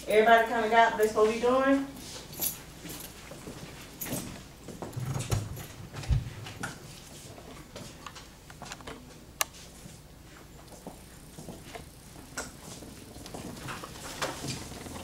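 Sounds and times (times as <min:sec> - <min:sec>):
low thumps: 0:05.4 - 0:06.6.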